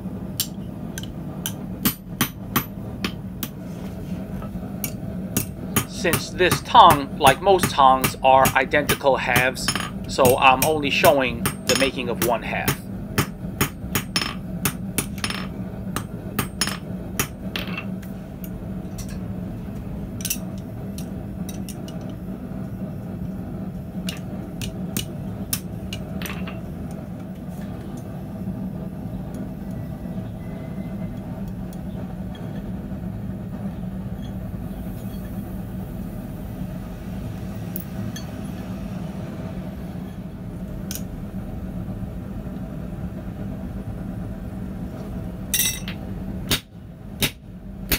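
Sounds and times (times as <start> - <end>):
steady low hum: 0.0 - 47.9
hammer striking steel bar: 4.8 - 15.4, 46.5 - 47.9
clinks of steel on steel: 45.6 - 46.0.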